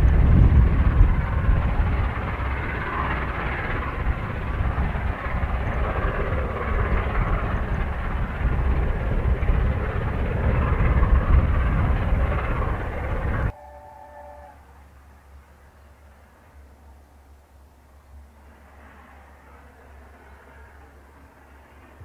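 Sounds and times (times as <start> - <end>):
heavy low rumble: 0.0 - 13.6
steam locomotive exhaust roar: 0.0 - 22.0.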